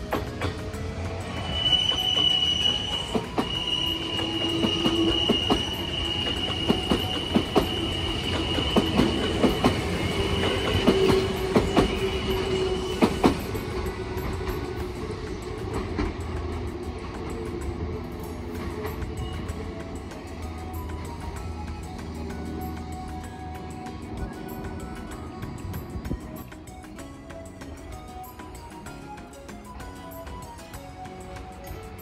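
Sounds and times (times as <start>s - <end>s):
train rumble: 0.0s - 32.0s
train wheels squealing: 0.0s - 32.0s
wheels knocking on rail joints: 1.9s - 19.9s.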